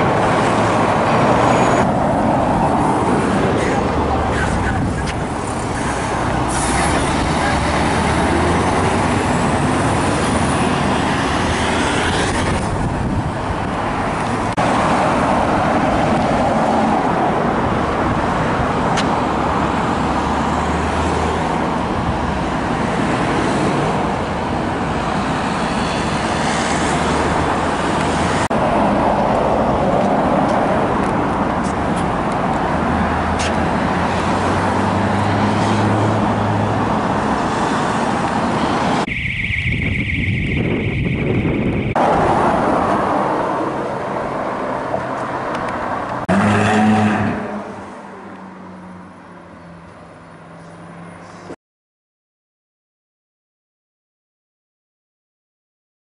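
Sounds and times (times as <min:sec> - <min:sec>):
tyres on road: 0:00.0 - 0:51.6.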